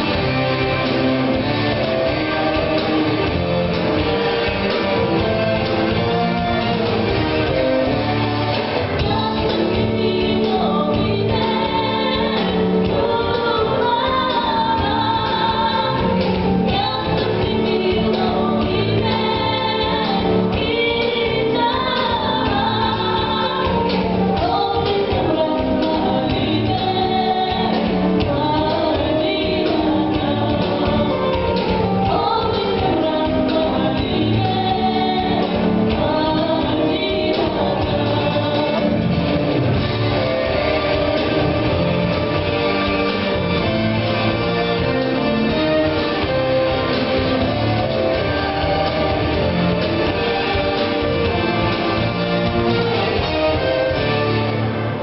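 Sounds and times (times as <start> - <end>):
instrumental accompaniment: 0.0 - 55.0
group of voices singing: 7.8 - 39.3.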